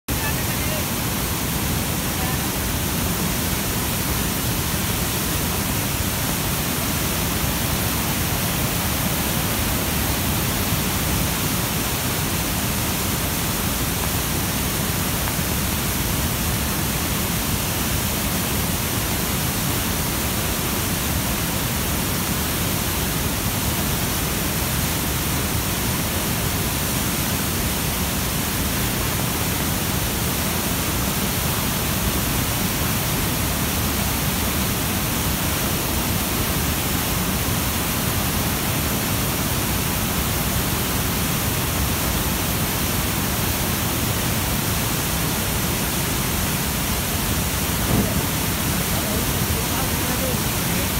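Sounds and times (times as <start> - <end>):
stream rushing over rocks: 0.1 - 50.9.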